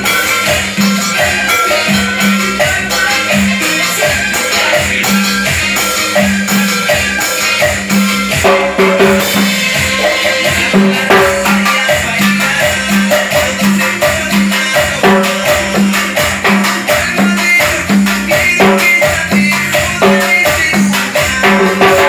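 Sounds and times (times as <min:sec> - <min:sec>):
cumbia music recording: 0:00.0 - 0:22.0
cowbell struck with sticks: 0:05.8 - 0:22.0.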